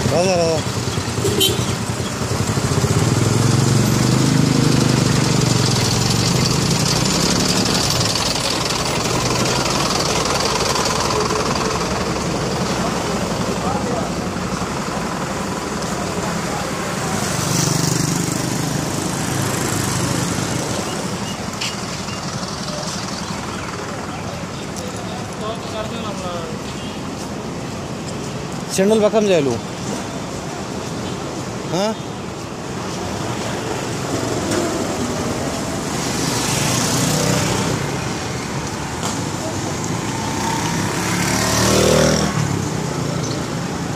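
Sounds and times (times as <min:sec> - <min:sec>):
vehicle passing: 0:00.0 - 0:21.2, 0:32.9 - 0:43.9
street traffic: 0:00.0 - 0:43.9
vehicle engines running: 0:00.0 - 0:43.9.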